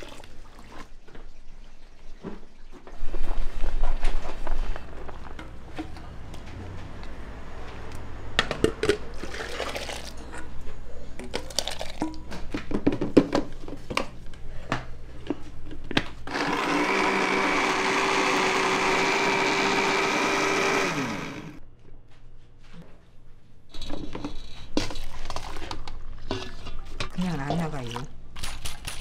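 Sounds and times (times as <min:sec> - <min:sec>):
electric blender running: 0:16.3 - 0:21.6.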